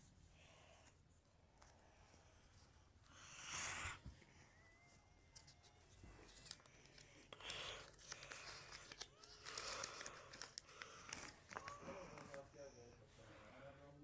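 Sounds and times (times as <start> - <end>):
paper rustling and crinkling: 5.3 - 12.5.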